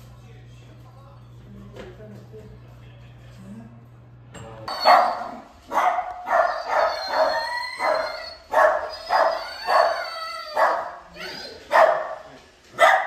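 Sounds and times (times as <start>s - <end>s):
dog barking: 4.7s - 11.1s, 11.7s - 13.0s.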